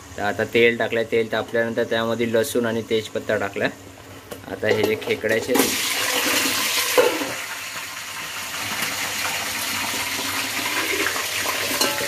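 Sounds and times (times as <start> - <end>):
frying in hot oil sizzling: 5.5 - 12.0.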